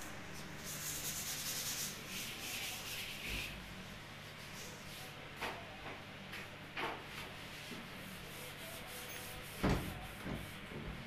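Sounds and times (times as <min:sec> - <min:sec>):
rubbing and knocks on plastic shelves: 0:06.8 - 0:11.0.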